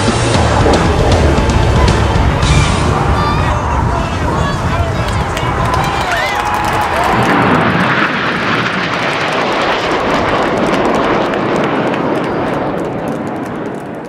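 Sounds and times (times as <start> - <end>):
aircraft engine rush: 0.0 - 14.0.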